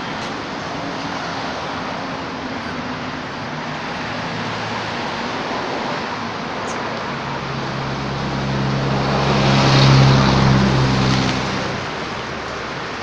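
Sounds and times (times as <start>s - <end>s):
engine hum: 0.0s - 13.0s.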